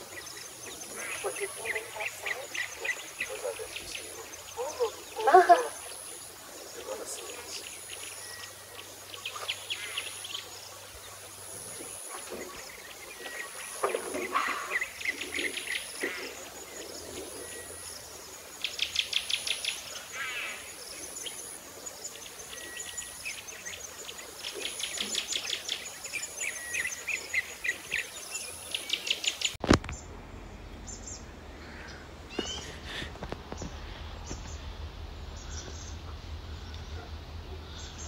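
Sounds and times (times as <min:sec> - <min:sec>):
high insect-like whine: 0:00.0 - 0:29.6
birds chirping and trilling: 0:00.0 - 0:38.0.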